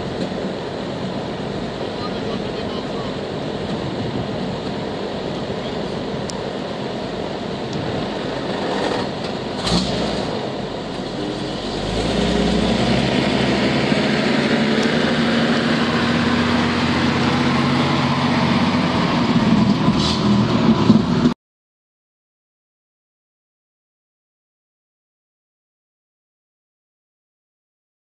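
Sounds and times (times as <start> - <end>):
fire engine driving past: 0.0 - 21.4.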